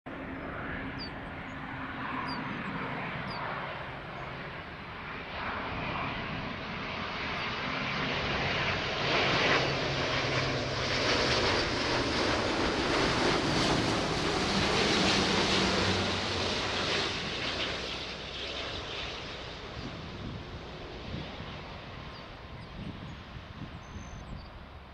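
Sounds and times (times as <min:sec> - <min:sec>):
jet airliner flying low: 0:00.1 - 0:24.9.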